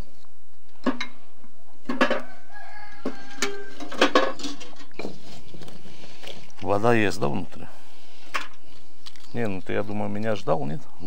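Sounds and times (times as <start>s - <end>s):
rooster crowing: 2.0s - 4.4s.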